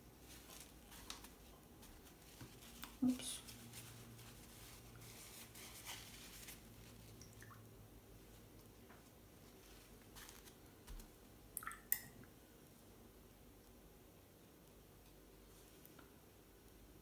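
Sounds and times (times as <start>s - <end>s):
brush on paper: 0.2s - 7.1s.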